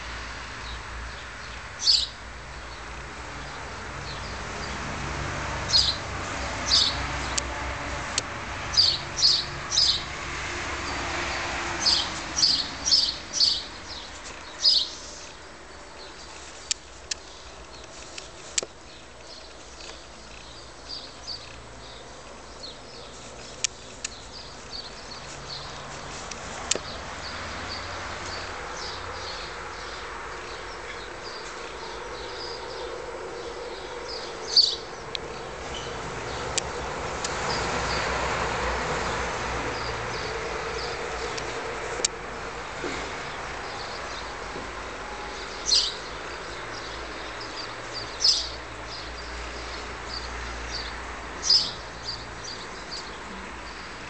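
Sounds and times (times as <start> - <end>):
small bird chirping: 0.6 - 2.8, 5.7 - 6.0, 6.6 - 7.5, 8.8 - 10.0, 11.8 - 32.9, 33.5 - 36.4, 45.4 - 54.0
sharp clicks: 26.3 - 26.9.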